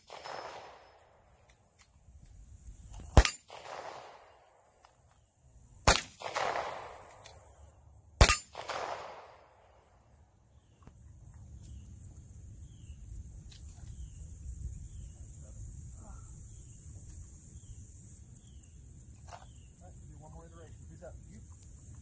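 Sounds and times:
gunshots with ringing tail: 0.0s - 1.1s, 3.1s - 4.6s, 5.8s - 7.2s, 8.2s - 9.9s.

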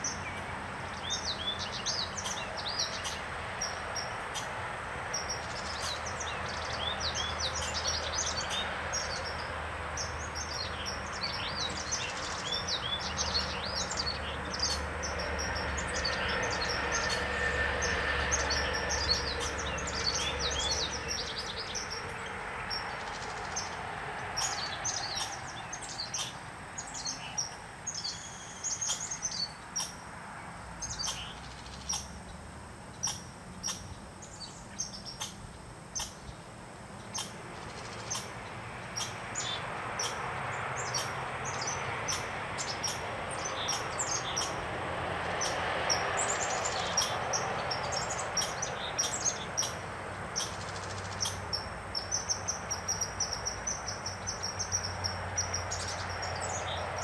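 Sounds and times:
small songbirds chirping: 0.0s - 57.0s.

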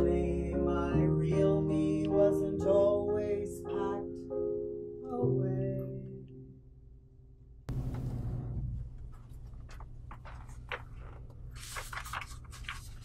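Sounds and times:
low room hum: 7.1s - 13.0s.

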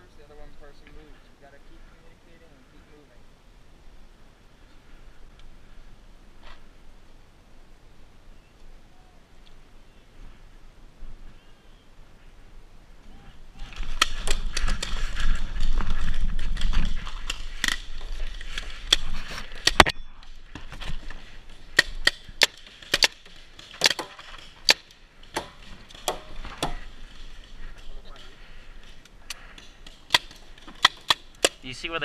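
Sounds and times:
paintball markers firing pops: 21.7s - 26.8s, 28.8s - 31.6s.

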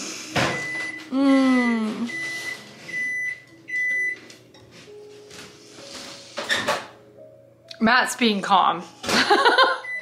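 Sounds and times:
appliance beeps: 0.4s - 1.2s, 2.0s - 4.6s, 9.5s - 10.0s
woman crying: 1.1s - 2.1s.

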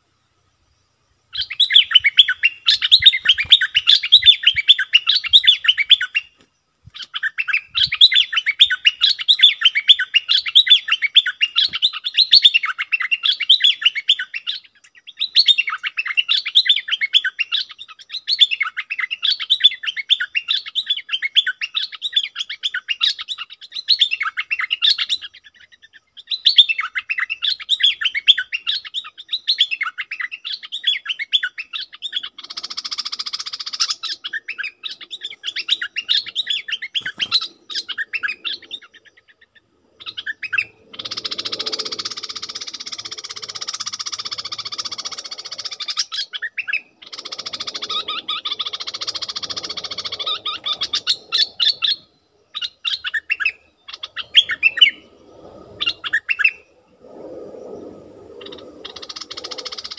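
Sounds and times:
bird singing bubbling chatter: 24.0s - 59.9s.

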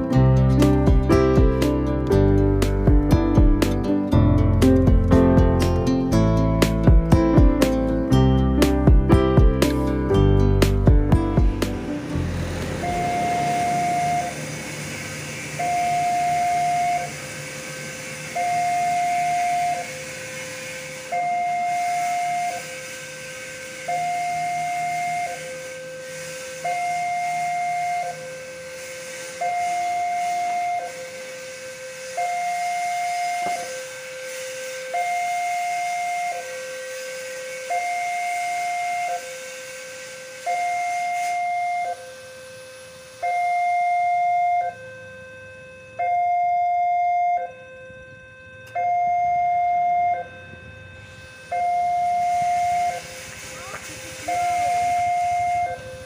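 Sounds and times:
level crossing two-tone alarm: 12.1s - 56.0s.

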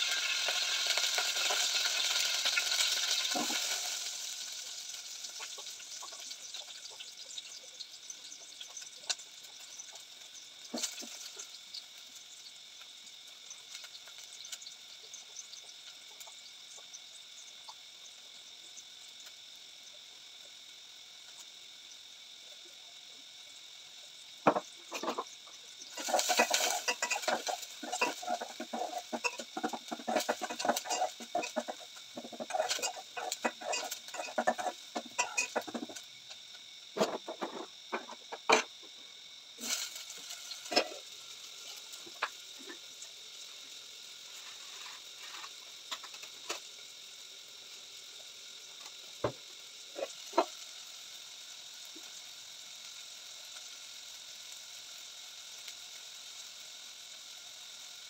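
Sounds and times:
faint steady hiss: 0.0s - 58.0s
pots and plates clattering: 24.5s - 25.3s, 25.9s - 36.0s
chickens clucking: 25.9s - 36.0s.

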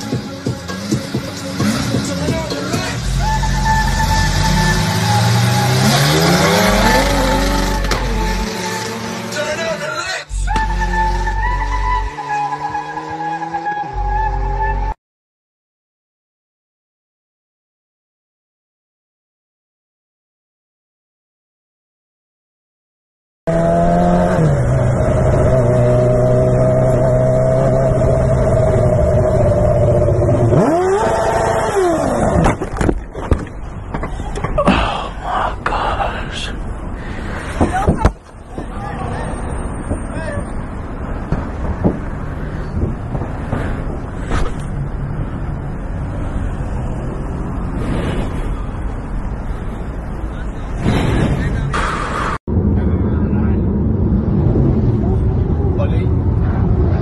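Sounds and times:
motorcycle engine revving: 4.2s - 9.5s, 23.5s - 32.4s.

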